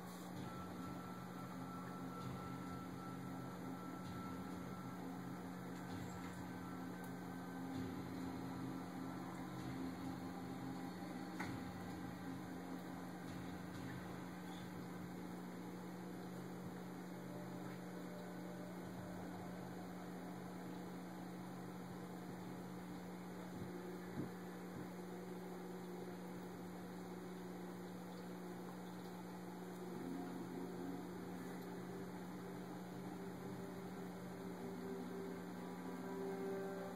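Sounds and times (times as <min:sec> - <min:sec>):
low electrical hum: 0:00.0 - 0:36.9.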